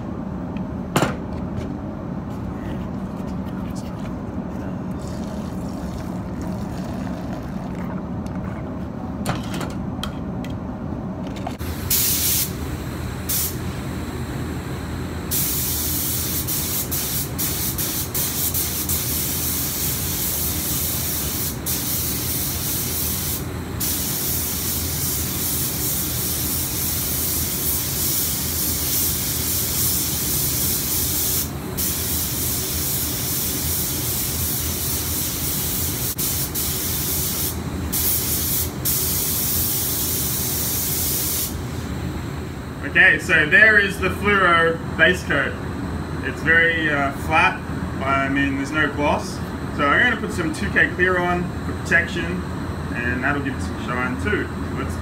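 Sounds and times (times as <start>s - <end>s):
spray gun hissing: 11.6s - 13.7s, 15.3s - 41.6s.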